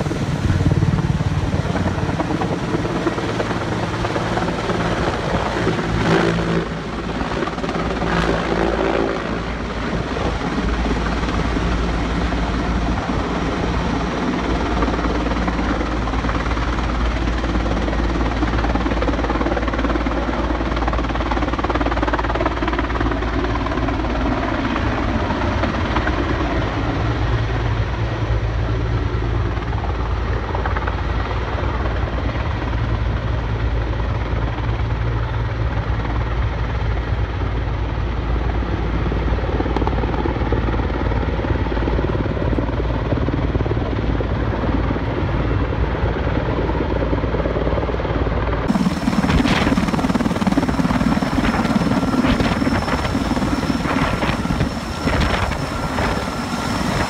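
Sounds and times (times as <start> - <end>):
helicopter hovering: 0.0 - 57.0
low hum: 48.6 - 57.0.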